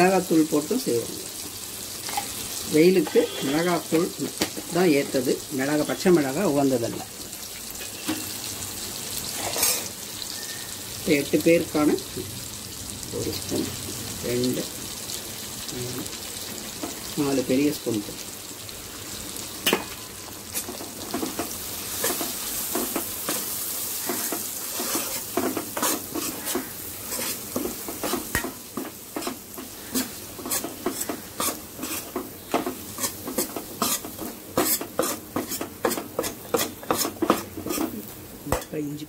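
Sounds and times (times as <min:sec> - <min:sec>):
food sizzling in oil: 0:00.0 - 0:39.0
ladle knocking and scraping pan: 0:19.6 - 0:38.7.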